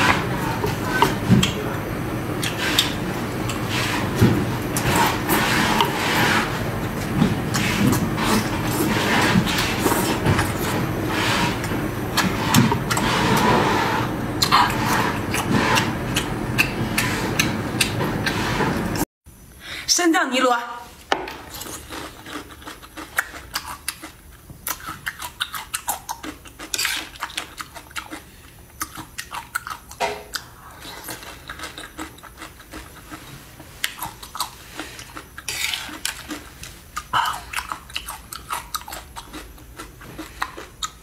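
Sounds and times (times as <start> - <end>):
chewing: 21.5 - 41.0.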